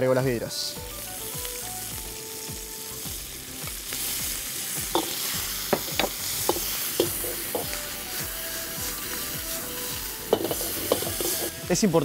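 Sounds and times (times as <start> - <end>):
seafood sizzling in a wok: 0.0 - 12.0
metal ladle scraping a wok: 4.9 - 7.8, 9.9 - 11.6.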